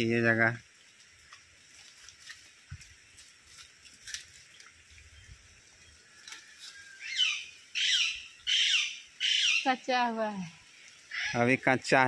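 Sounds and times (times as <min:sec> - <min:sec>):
bird squawking: 0:06.9 - 0:09.8, 0:11.1 - 0:11.4.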